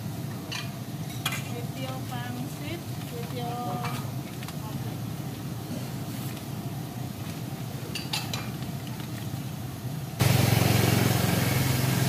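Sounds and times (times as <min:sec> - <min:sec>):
bowls and utensils clinking: 0:07.9 - 0:08.6
motor scooter engine: 0:10.2 - 0:12.0.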